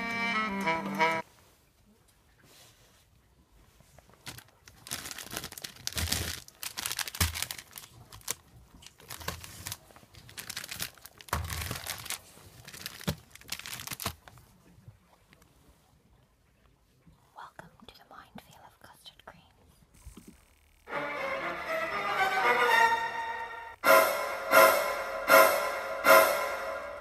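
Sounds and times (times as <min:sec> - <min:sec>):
plastic packets crinkling: 0:04.2 - 0:14.4.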